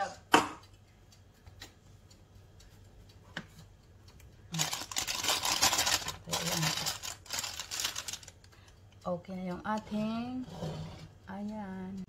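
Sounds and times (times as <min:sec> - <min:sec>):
plastic bag crinkling: 0:04.6 - 0:08.4.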